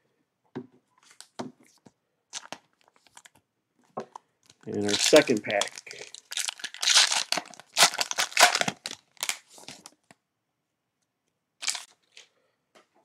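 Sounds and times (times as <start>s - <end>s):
cellophane wrapper crinkling: 2.3s - 3.4s, 4.4s - 10.0s, 11.6s - 12.2s.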